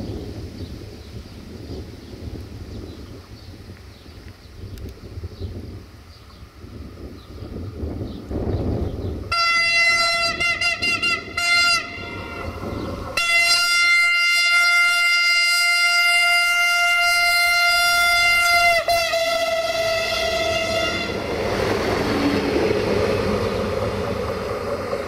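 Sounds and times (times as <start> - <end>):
low train rumble: 0.0 - 25.0
train horn blasts: 9.3 - 21.6.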